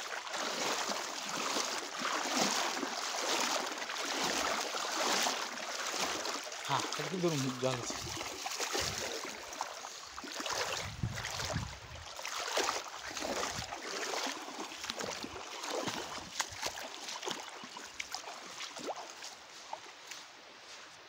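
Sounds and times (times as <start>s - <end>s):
cast net splashing: 0.0s - 19.8s
wading through river water: 0.0s - 21.0s.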